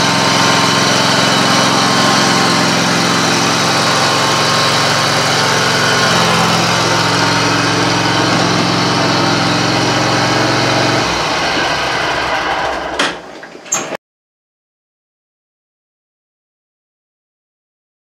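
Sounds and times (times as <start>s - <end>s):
lawn mower engine running: 0.0s - 13.8s.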